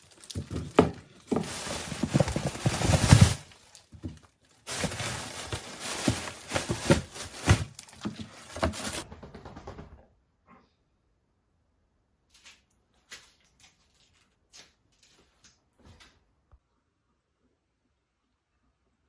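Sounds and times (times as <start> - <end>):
plastic crinkling: 0.0 - 9.0
frozen packs thudding on table: 0.1 - 9.0.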